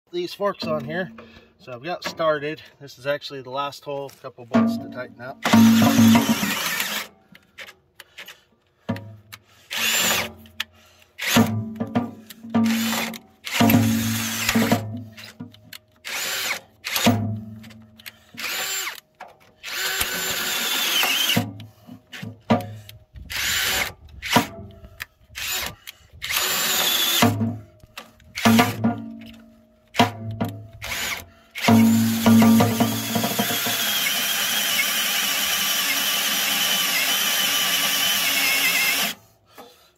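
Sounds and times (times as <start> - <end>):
cordless drill boring steel: 5.4 - 8.4, 9.6 - 11.5, 12.2 - 15.4, 16.0 - 17.1, 18.0 - 19.0, 19.6 - 22.3, 23.3 - 27.4, 30.8 - 39.3.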